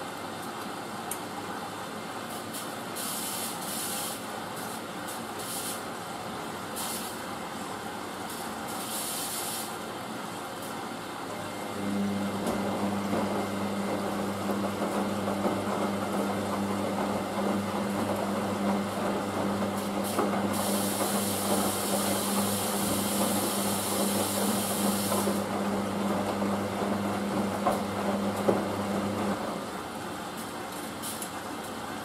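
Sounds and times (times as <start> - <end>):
washing machine humming: 0.0 - 32.0
loud hiss: 2.4 - 4.3, 6.7 - 7.3, 8.6 - 9.8, 20.0 - 25.3.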